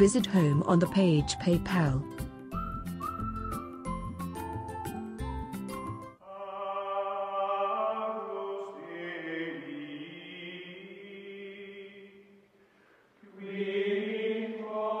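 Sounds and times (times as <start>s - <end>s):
slow chant-like music: 6.2s - 12.6s, 13.2s - 15.0s.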